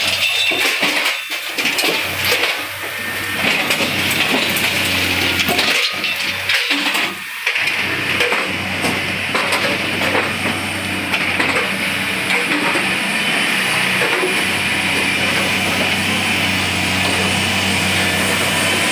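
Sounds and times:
metal clanks and knocks: 0.0s - 2.7s, 3.4s - 13.0s
diesel engine humming: 0.0s - 18.9s.

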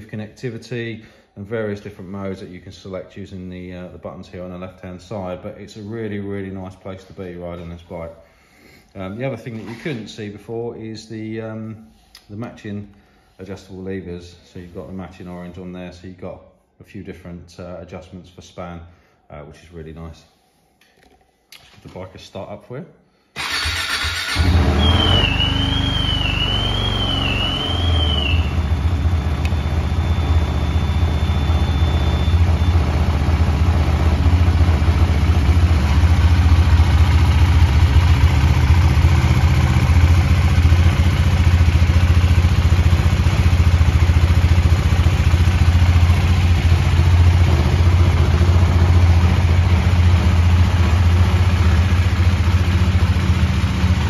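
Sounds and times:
motorcycle engine starting and idling: 23.4s - 54.0s.

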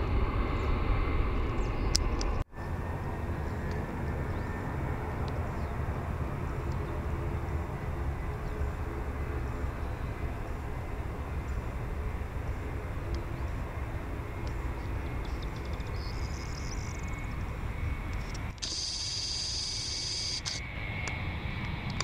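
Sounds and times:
jet engines rumbling at takeoff: 0.0s - 22.0s
high hiss: 18.6s - 20.6s.

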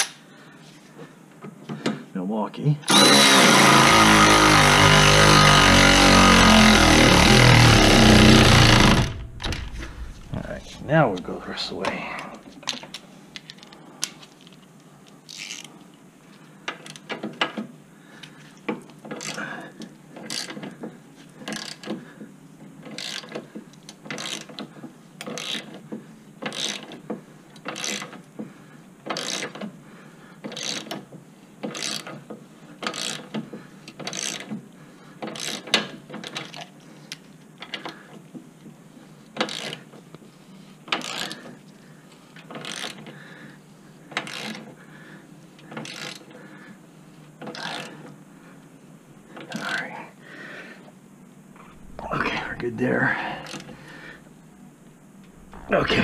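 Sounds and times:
ratchet wrench clicking: 42.6s - 43.0s, 44.2s - 44.6s, 45.8s - 46.2s.

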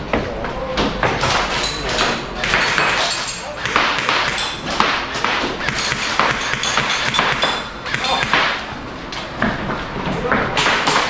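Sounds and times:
airsoft rifle shots: 2.4s - 8.6s.

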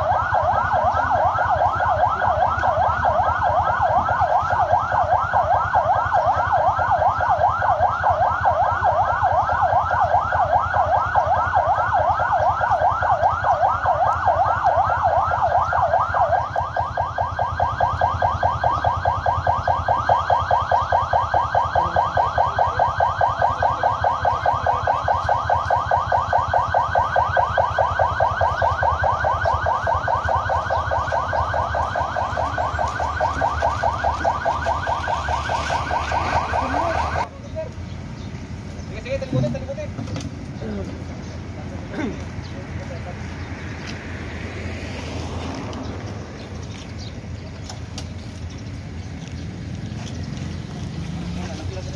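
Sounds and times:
emergency siren yelping: 0.0s - 51.9s.

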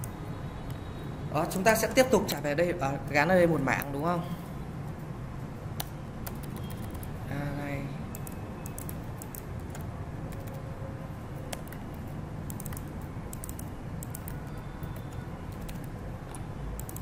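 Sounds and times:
keyboard typing: 5.7s - 7.3s, 8.1s - 10.7s, 11.3s - 17.0s.

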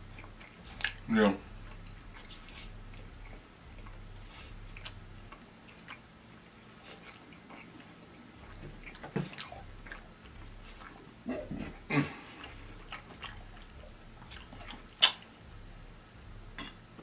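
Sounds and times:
wet mouth clicks: 0.0s - 6.1s, 12.4s - 15.4s
chewing food: 0.0s - 17.0s.

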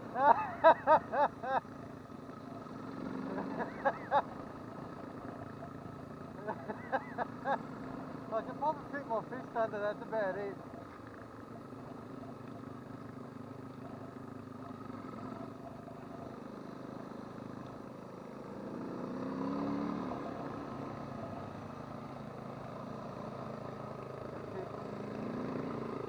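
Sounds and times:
motorcycle engine revving: 0.0s - 26.0s.

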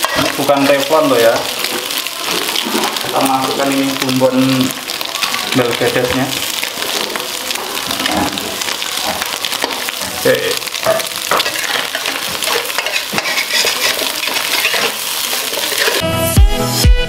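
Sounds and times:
metal spatula scraping wok: 0.0s - 4.1s, 10.8s - 16.4s
food sizzling in a wok: 0.0s - 17.0s
music: 15.8s - 17.0s.

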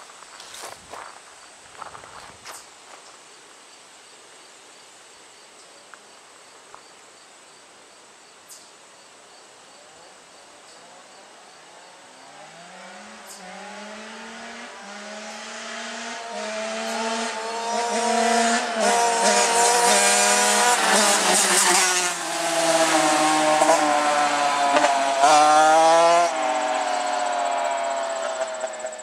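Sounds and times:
dirt bikes racing: 12.0s - 29.0s.

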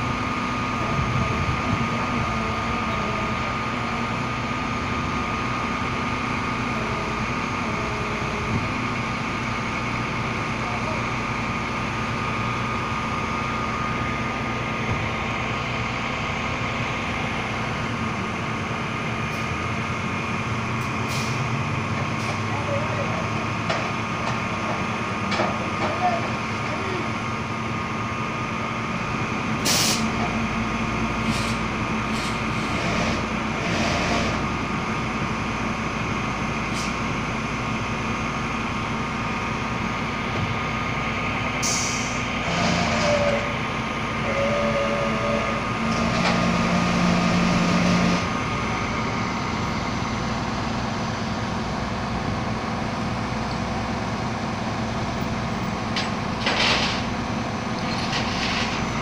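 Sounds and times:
tow truck engine running: 0.0s - 59.0s
short air hisses: 29.6s - 30.1s.

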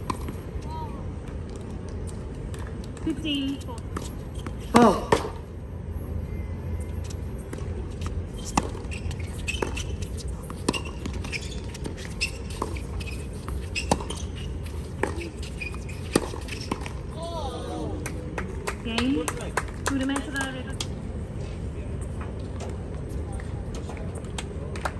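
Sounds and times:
low background hum: 0.0s - 24.9s
tennis ball bounces: 7.5s - 17.0s.

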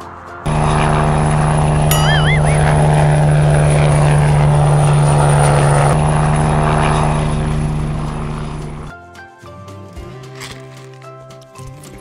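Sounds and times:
helicopter rotor and engine drone: 0.5s - 8.9s
warbling whistle: 1.9s - 3.2s.

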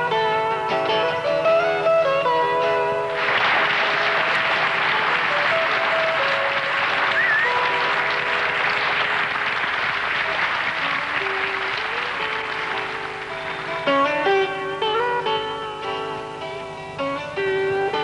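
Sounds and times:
band music: 0.0s - 18.0s
audience applause: 3.1s - 14.4s.

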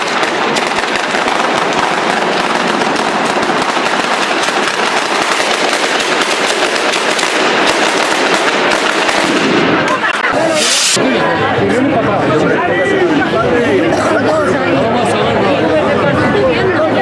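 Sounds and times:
firecrackers crackling: 0.0s - 11.1s.

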